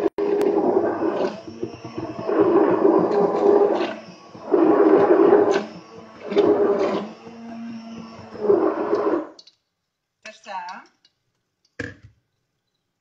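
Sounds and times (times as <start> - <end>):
immersion blender pureeing: 0.0 - 9.4.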